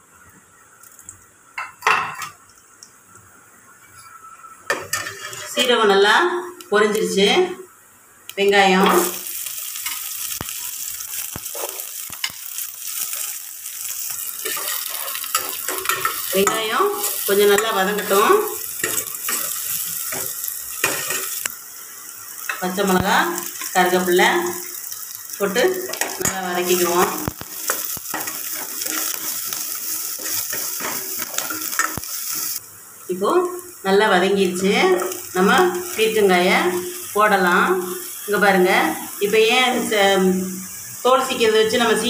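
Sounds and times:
onions sizzling in hot oil: 0.0s - 42.0s
metal spoon stirring and scraping: 14.4s - 18.2s, 18.8s - 21.4s, 27.6s - 32.6s.

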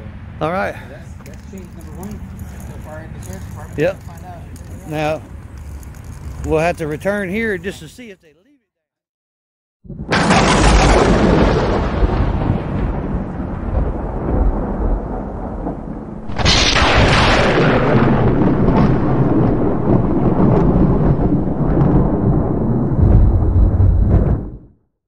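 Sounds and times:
deep thunder-like rumble: 9.9s - 24.8s.

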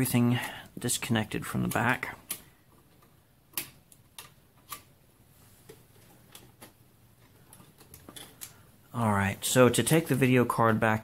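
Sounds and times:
cable plugs clicking and knocking: 1.4s - 4.9s, 5.6s - 8.6s.

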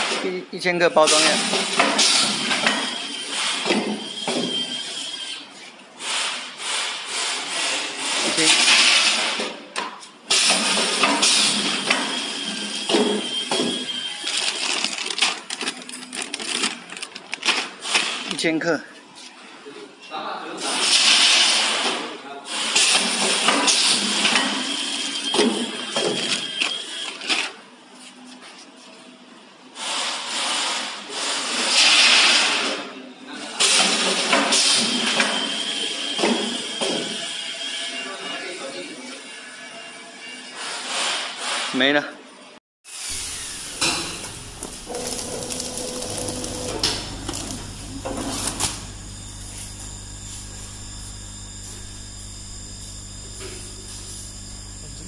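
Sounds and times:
bagging machine clicks and clatter: 10.3s - 18.4s, 43.2s - 49.8s
filling machine motor hum: 43.0s - 55.0s.

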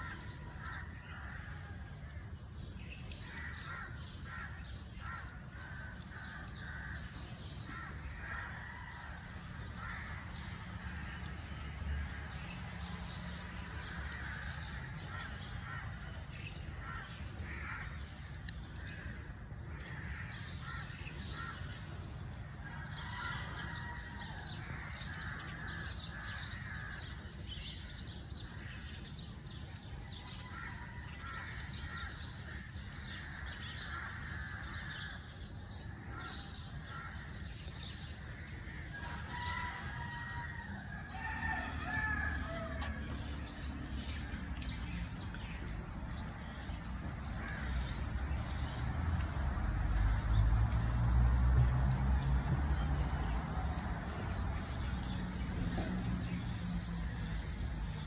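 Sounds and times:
crows cawing: 3.2s - 12.4s, 16.8s - 21.9s, 22.6s - 27.4s, 30.4s - 44.3s, 46.8s - 48.0s.

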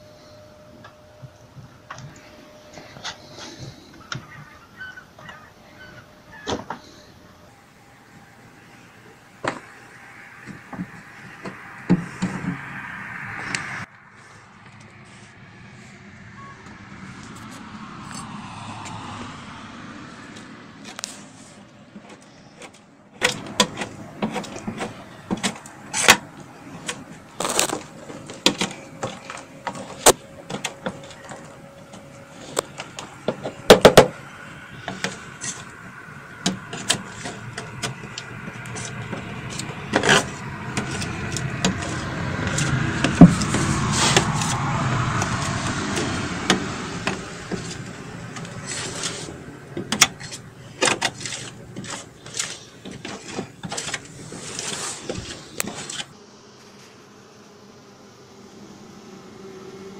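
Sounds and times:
rasping scrape on metal screen: 36.4s - 46.2s, 47.0s - 56.1s.

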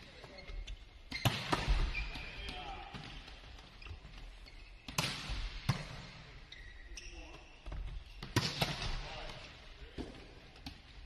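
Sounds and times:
shoe squeaks: 0.1s - 2.5s, 3.8s - 4.9s, 6.4s - 8.2s.

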